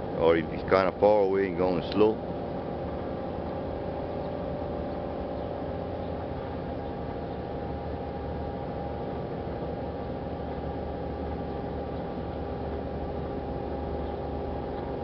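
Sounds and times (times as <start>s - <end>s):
hydraulic winch machinery humming: 0.0s - 15.0s.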